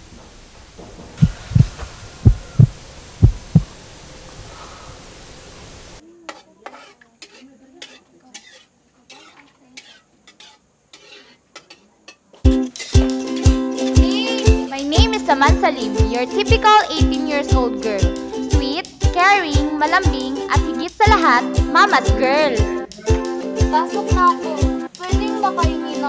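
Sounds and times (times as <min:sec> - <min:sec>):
steady hiss: 0:00.0 - 0:06.0
deep double thumps: 0:01.0 - 0:03.9
metal utensil stirring in a pot: 0:06.3 - 0:12.2.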